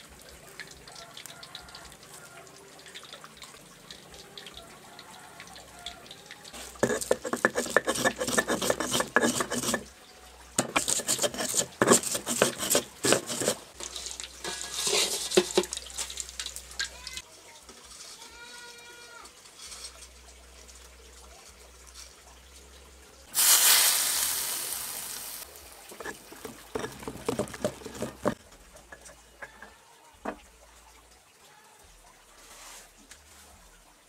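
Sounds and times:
oil sizzling loud hiss: 11.7 - 16.5, 23.3 - 26.1
ladle clinking in wok: 13.8 - 15.7.

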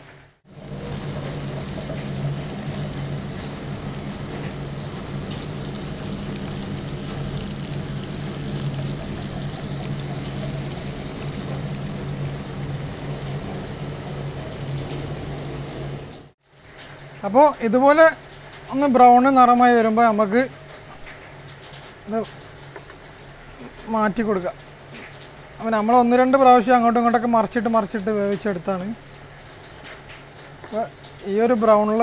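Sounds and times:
fish sizzling in hot oil: 0.4 - 16.4
low hum: 0.5 - 16.3.

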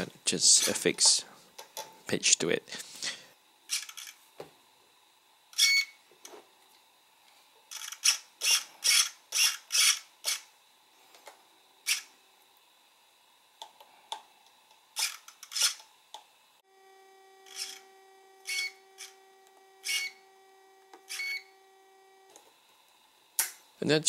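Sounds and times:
servo whirs: 3.7 - 4.2, 7.7 - 10.5, 11.8 - 12.2, 14.9 - 15.8, 16.6 - 22.4.

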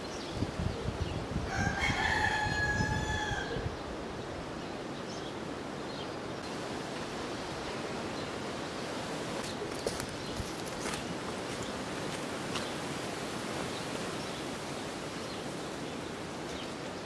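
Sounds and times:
rooster crowing: 1.5 - 3.7.

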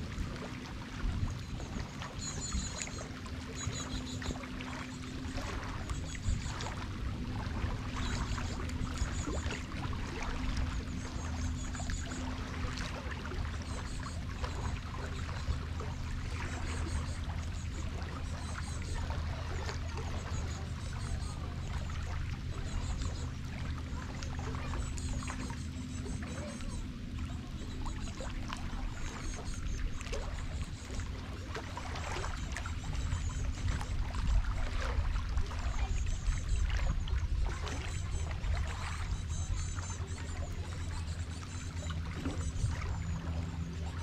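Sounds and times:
low hum: 0.0 - 44.0
water lapping and dripping: 0.0 - 44.0.

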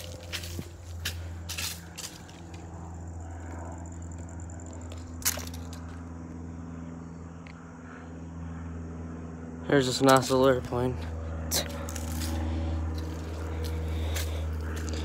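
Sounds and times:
footsteps on dry leaves: 0.0 - 3.6, 10.0 - 15.0
propeller airplane drone: 0.0 - 15.0.

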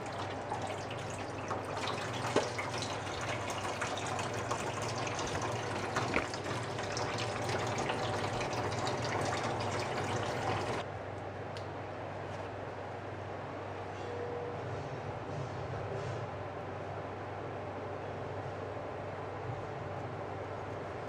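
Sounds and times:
faucet running into steel sink: 0.0 - 10.8.

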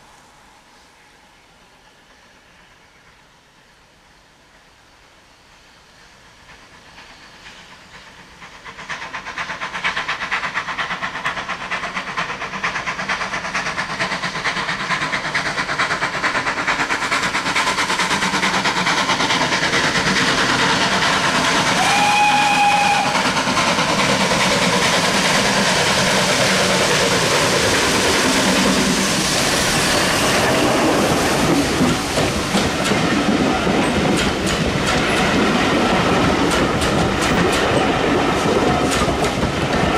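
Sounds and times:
steam locomotive passing: 0.0 - 39.9
train whistle blast: 21.8 - 23.2.

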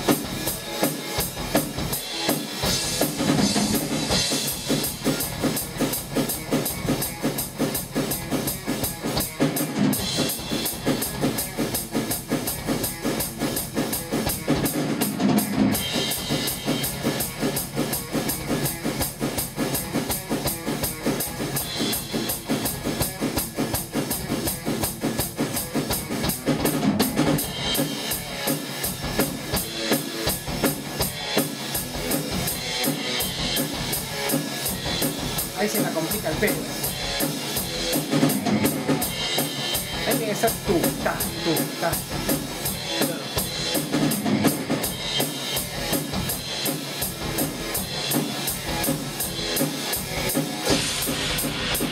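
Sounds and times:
fast drum beat: 0.0 - 51.9
cymbal crashes: 48.0 - 51.9.

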